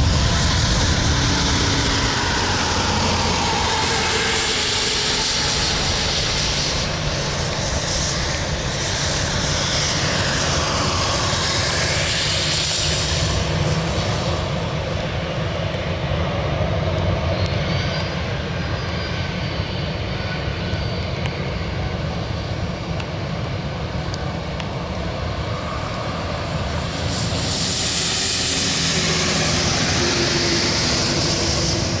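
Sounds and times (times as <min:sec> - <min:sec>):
jet engines deep rumble: 0:00.0 - 0:32.0
broad hiss: 0:25.6 - 0:32.0.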